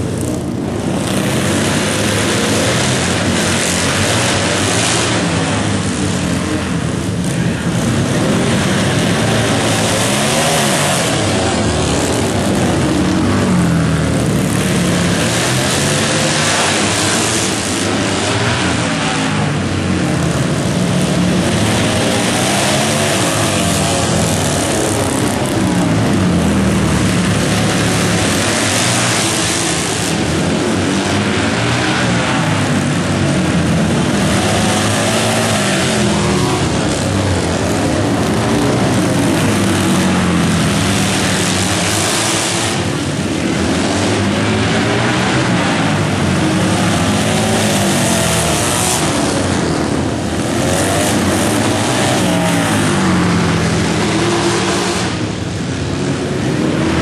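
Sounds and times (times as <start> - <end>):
racing motorcycle engines: 0.0 - 57.0.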